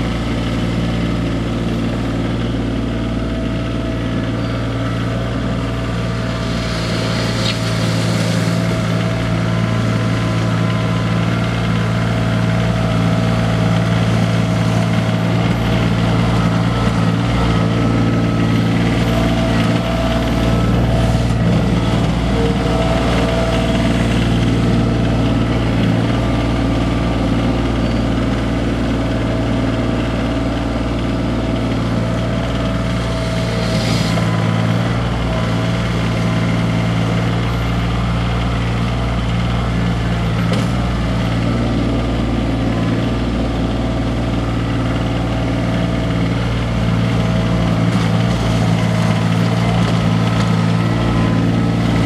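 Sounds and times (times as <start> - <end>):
tractor diesel engine running: 0.0 - 52.0
brief hiss: 6.4 - 9.0.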